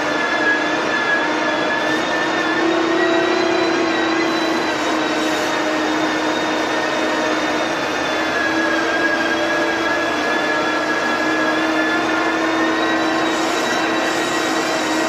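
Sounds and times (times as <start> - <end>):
steady whine: 0.0 - 15.0.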